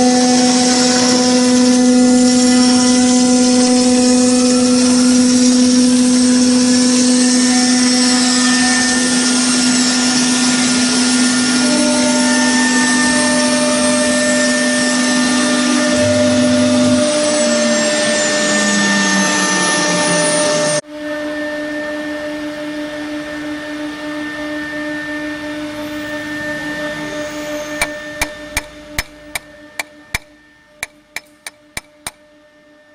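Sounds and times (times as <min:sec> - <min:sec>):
spindle whine milling metal: 0:00.0 - 0:32.8
sharp clicks: 0:27.8 - 0:32.2.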